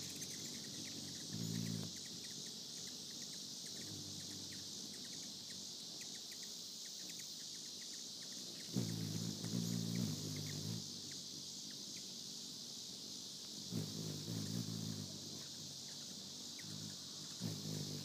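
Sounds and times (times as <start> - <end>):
crickets chirring: 0.0 - 18.0
hummingbird wings humming: 0.0 - 18.0.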